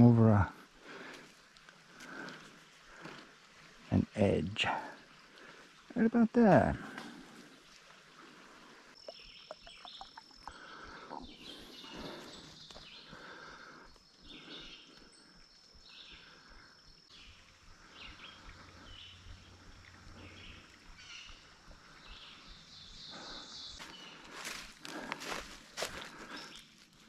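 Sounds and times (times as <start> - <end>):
footsteps crunching through dry leaves: 23.8 - 27.0.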